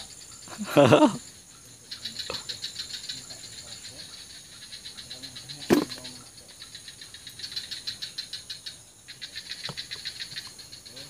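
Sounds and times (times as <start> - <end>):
insects calling in rapid pulses: 0.0 - 11.0
sharp knock: 5.7 - 6.1.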